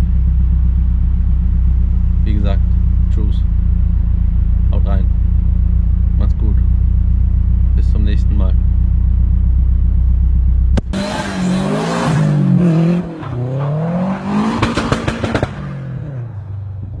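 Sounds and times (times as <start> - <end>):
exhaust pops: 0.0 - 11.2, 14.3 - 15.8
car engine idling: 0.0 - 17.0
engine revving: 1.4 - 16.6.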